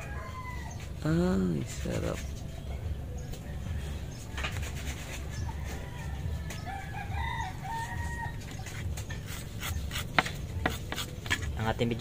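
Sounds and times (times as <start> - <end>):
rooster crowing: 0.0 - 0.9, 5.3 - 8.7.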